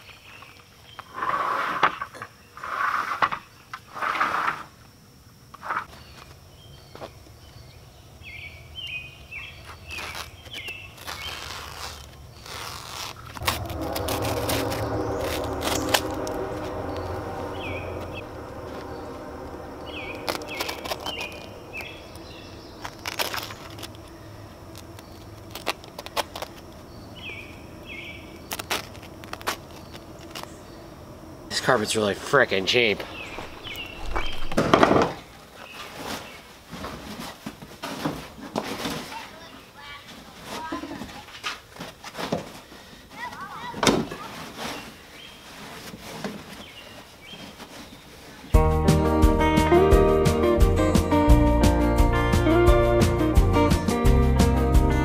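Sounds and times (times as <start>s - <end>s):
engine-like hum: 11.9s - 34.8s
bird chirps: 13.2s - 25.3s, 26.8s - 28.8s, 32.9s - 34.6s
loud noise bursts: 13.4s - 24.0s.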